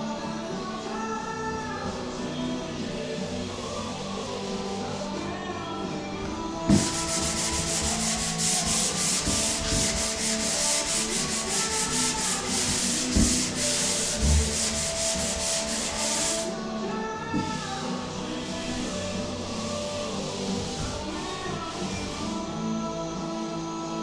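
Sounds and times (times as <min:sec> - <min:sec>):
hand sanding drywall: 0:01.9 - 0:05.4, 0:06.6 - 0:16.6, 0:17.3 - 0:22.5.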